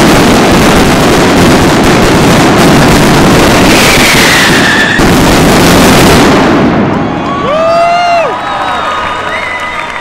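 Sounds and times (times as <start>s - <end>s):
firecracker barrage: 0.0s - 8.3s
firework whistle: 3.5s - 8.3s.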